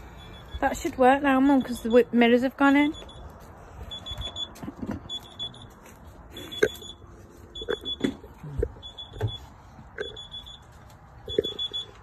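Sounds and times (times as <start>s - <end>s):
high-pitched electronic alarm beeping: 0.0s - 2.2s, 2.9s - 12.0s.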